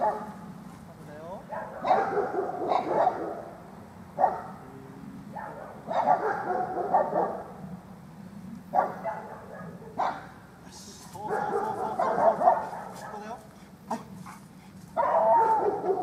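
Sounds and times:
dog barking: 0.0s - 0.4s, 1.5s - 3.5s, 4.2s - 4.6s, 5.3s - 7.6s, 8.7s - 10.4s, 11.2s - 16.0s.

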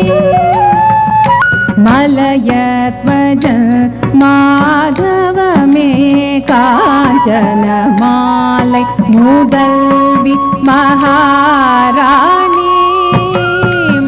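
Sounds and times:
drum strokes: 0.0s - 14.0s
ornamented melody line: 0.0s - 14.0s.

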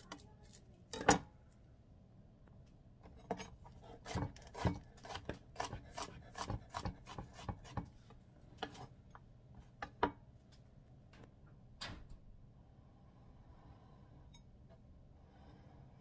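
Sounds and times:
knife chopping on plastic board: 4.0s - 7.9s.

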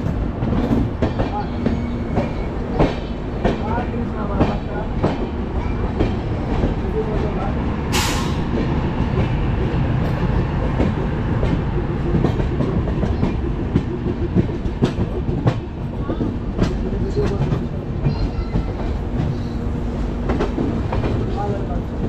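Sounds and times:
train wheels rumbling: 0.0s - 22.0s
wheels clacking over rail joints: 0.0s - 22.0s.

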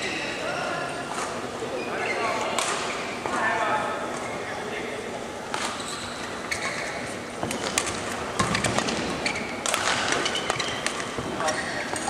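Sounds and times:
shoes squeaking on court: 1.0s - 3.5s, 5.5s - 12.0s
racket striking shuttlecock: 7.4s - 11.3s.

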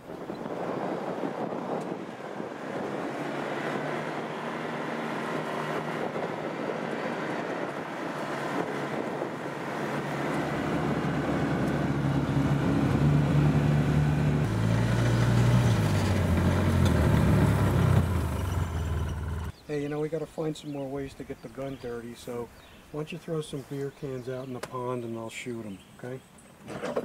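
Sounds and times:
utility vehicle engine driving: 2.1s - 19.6s.

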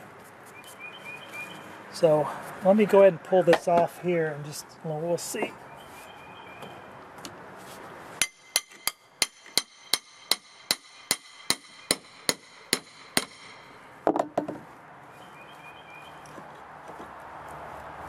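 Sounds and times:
hammer blows ringing: 8.2s - 13.8s.

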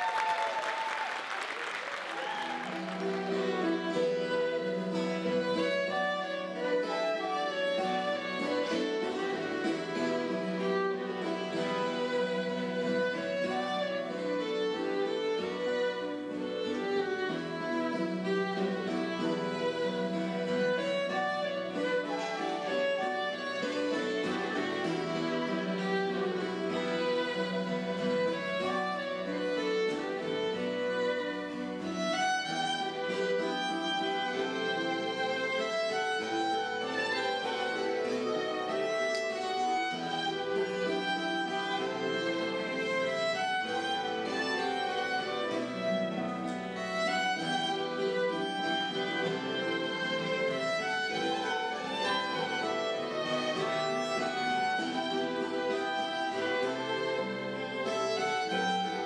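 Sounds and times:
fiddle melody: 0.0s - 59.0s
plucked strings: 2.6s - 59.0s.

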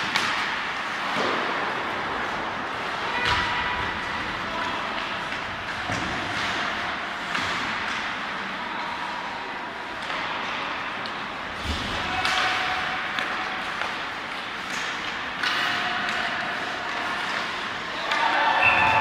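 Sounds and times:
sticks and puck clacking: 0.0s - 19.0s.

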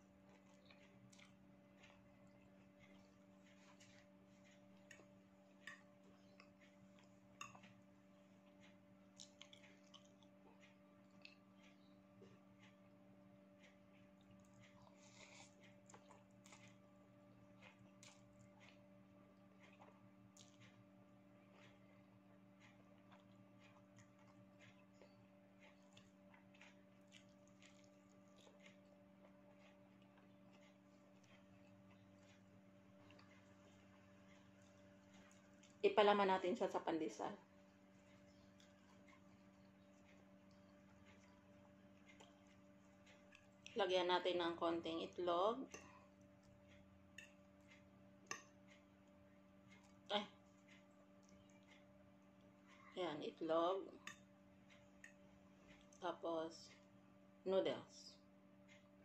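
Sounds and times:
person chewing noodles: 0.0s - 35.8s, 37.4s - 43.8s, 45.7s - 52.9s, 54.0s - 56.0s
low steady hum: 0.0s - 59.0s
fork clicking on a plate: 48.2s - 48.6s, 54.0s - 54.3s.

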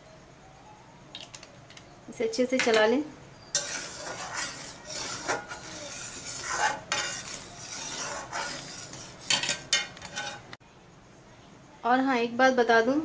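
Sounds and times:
spatula scraping metal pan: 3.5s - 10.6s.

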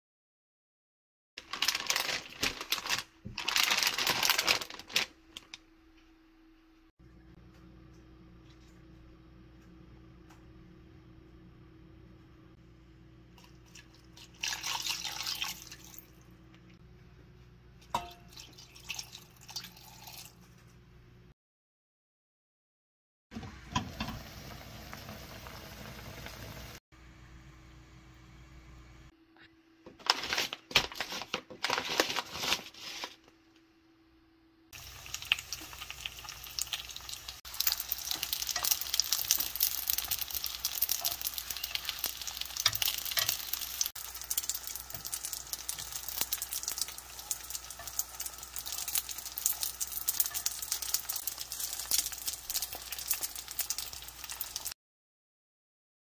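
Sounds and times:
dumplings sizzling in oil: 23.6s - 26.8s, 34.7s - 54.8s.

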